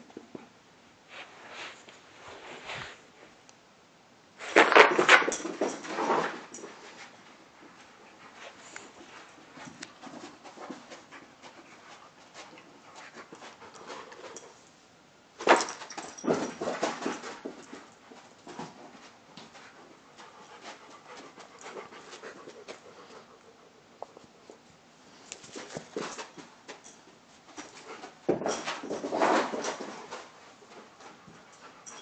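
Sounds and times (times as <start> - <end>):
dog scrabbling with rustles and clicks: 4.4 - 14.6, 15.4 - 23.4, 25.3 - 32.0
dog panting: 7.8 - 14.5, 19.6 - 24.6.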